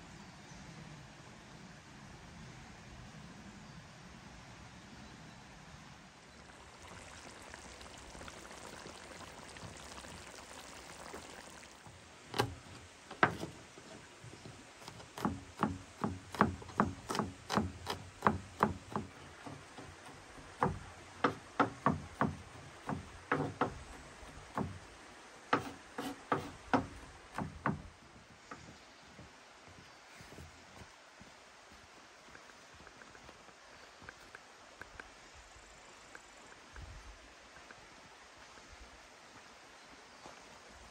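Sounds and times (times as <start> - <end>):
faint steady hiss: 0.0 - 40.9
knife chopping on wooden board: 14.9 - 19.1, 20.6 - 23.8, 25.6 - 27.8.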